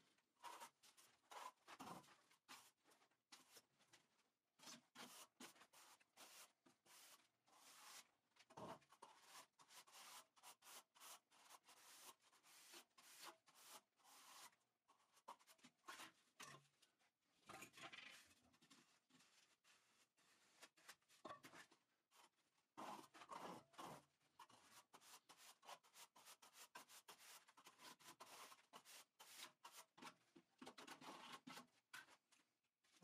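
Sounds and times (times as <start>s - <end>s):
trowel scraping mortar: 22.8s - 31.7s.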